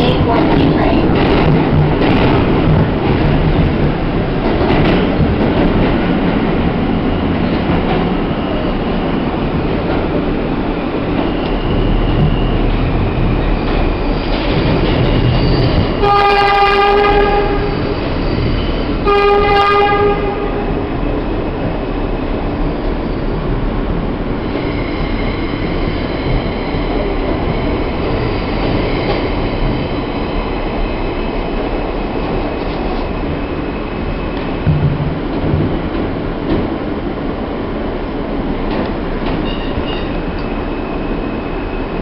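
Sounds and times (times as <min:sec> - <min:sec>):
subway train rumbling in tunnel: 0:00.0 - 0:42.0
train horn blasts: 0:16.0 - 0:17.9, 0:19.0 - 0:20.8.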